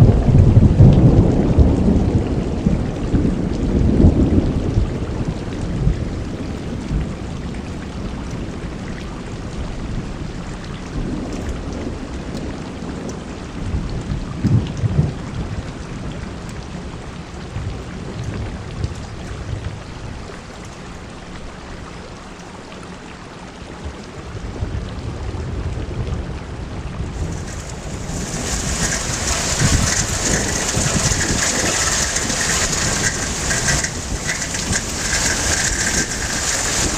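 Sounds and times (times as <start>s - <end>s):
thunder rumbling: 0.0s - 7.9s, 10.9s - 16.4s, 24.4s - 36.9s
heavy rain pouring: 0.0s - 36.9s.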